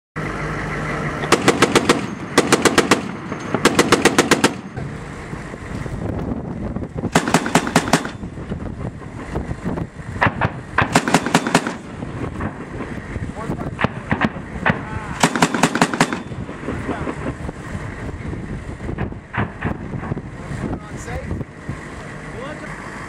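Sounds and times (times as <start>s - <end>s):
machine gun firing bursts: 1.3s - 4.7s, 7.1s - 8.2s, 10.8s - 12.0s, 15.2s - 16.7s.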